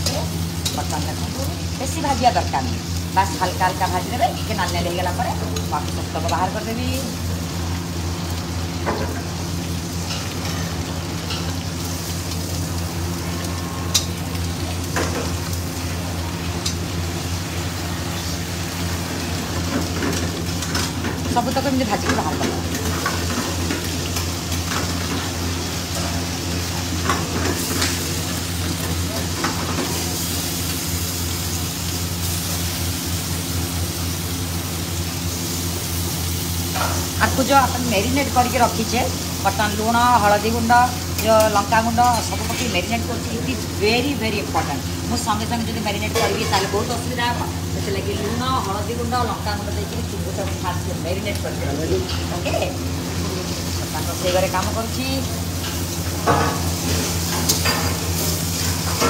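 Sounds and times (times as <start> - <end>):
prawns sizzling in oil: 0.0 - 59.0.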